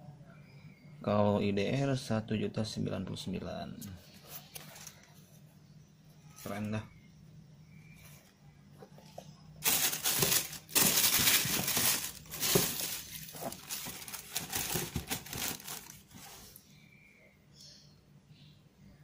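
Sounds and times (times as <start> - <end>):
tissue paper crinkling: 9.6 - 16.6.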